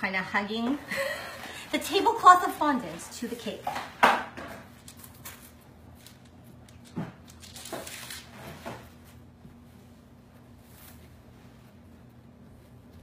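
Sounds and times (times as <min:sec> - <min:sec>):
faint rustling of fondant: 0:04.8 - 0:13.0.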